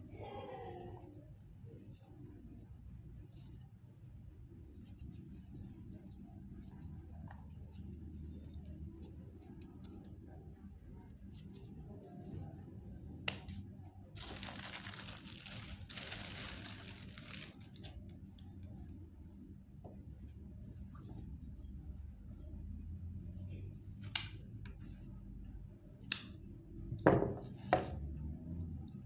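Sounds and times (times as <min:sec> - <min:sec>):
paper tearing or crinkling: 0:14.2 - 0:18.1.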